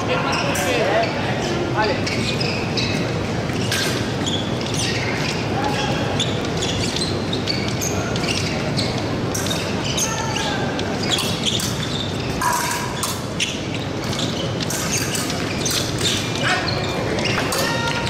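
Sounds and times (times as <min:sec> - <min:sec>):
crowd voices: 0:00.0 - 0:18.0
sharp short squeaks: 0:00.2 - 0:18.0.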